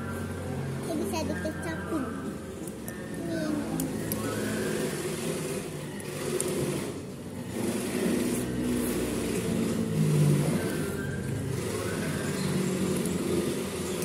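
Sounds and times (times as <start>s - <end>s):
road traffic passing: 0.0s - 14.0s.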